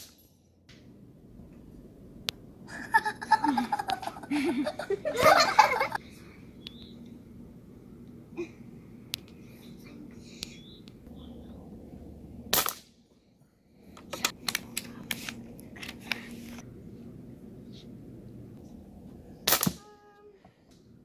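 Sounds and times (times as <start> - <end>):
air rifle shot: 12.5 - 12.9, 19.4 - 19.8.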